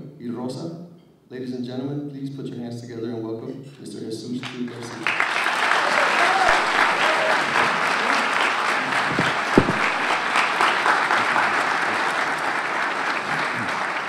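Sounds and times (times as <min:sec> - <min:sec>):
audience applauding: 0:04.4 - 0:14.0
thump: 0:09.1 - 0:10.0.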